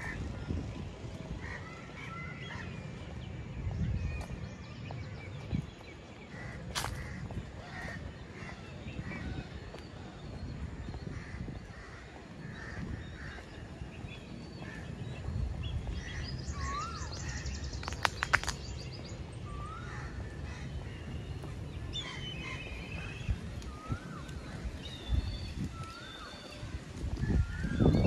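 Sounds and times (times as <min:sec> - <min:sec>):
birds calling: 0:04.2 - 0:28.0
sharp clicks: 0:17.8 - 0:18.6.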